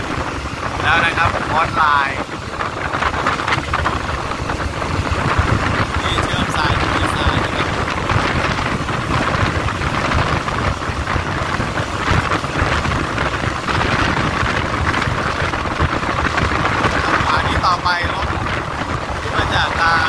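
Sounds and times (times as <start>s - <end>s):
train wheels on rails: 0.0s - 20.0s
wind buffeting microphone: 0.0s - 20.0s.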